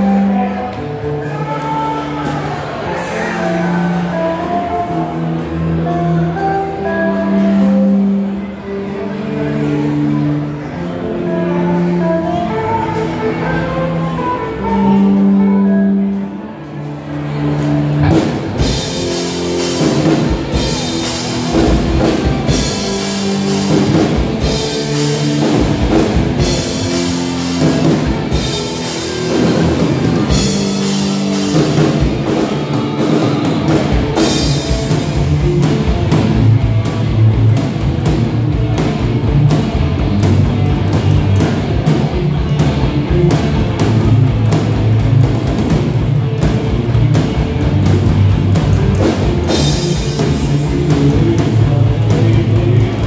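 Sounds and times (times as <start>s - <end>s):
electric guitars: 0.0s - 53.0s
drum kit: 17.5s - 53.0s.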